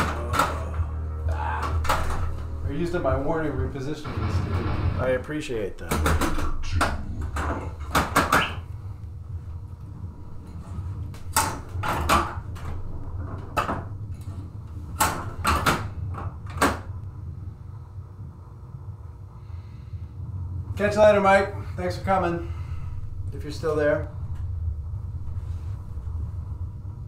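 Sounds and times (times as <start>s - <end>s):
low steady hum: 0.0s - 27.0s
pinball machine knocks and clacks: 5.8s - 8.6s.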